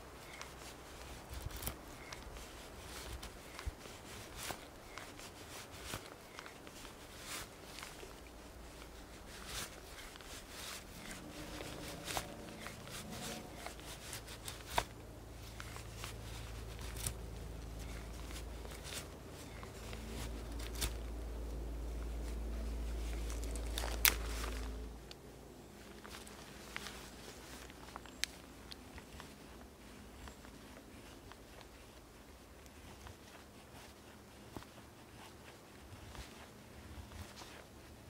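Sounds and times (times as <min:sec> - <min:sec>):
low steady hum: 0:00.0 - 0:38.0
knife scraping wood: 0:08.9 - 0:21.0.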